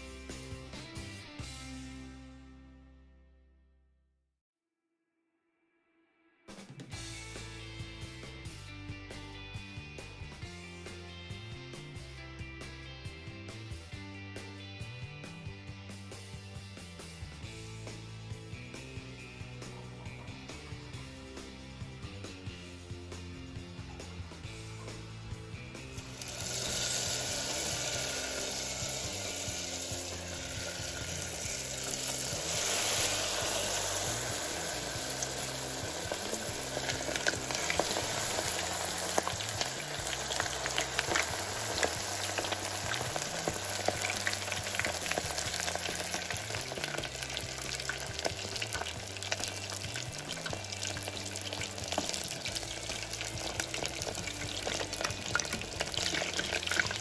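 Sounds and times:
soft background music: 0:06.4 - 0:57.0
food deep-frying in oil: 0:25.8 - 0:57.0.

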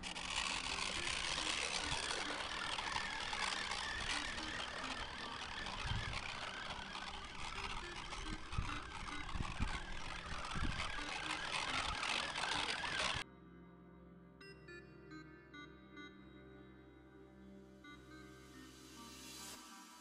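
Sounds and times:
toy truck motor running: 0:00.0 - 0:13.2.

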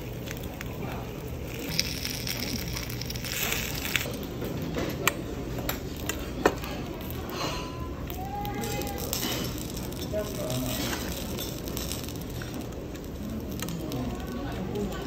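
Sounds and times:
metal spoon stirring in bowl: 0:01.5 - 0:04.1, 0:08.6 - 0:12.6.

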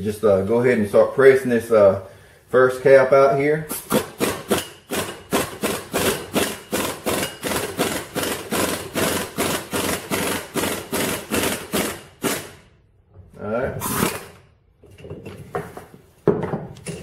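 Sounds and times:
impact wrench hammering: 0:03.7 - 0:12.8.

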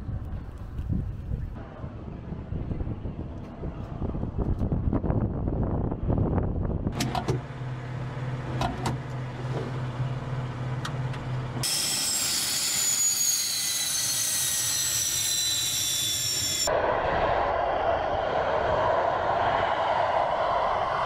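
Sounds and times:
cockpit low hum: 0:00.0 - 0:21.0
jet engines turbine whine: 0:07.2 - 0:21.0.

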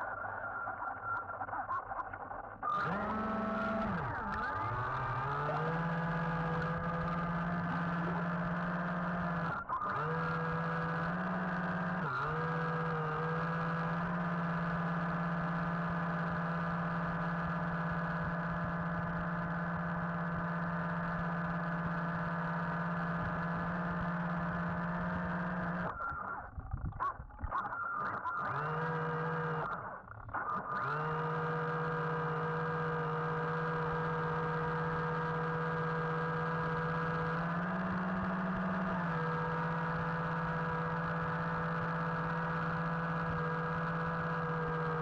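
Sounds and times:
electric motor whining underwater: 0:02.7 - 0:17.0, 0:28.5 - 0:29.8, 0:30.8 - 0:45.0.

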